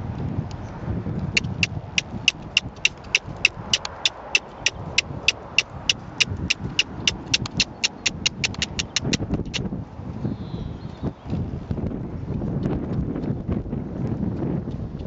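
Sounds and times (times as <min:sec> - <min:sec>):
sharp tongue clicks: 0:01.4 - 0:09.6.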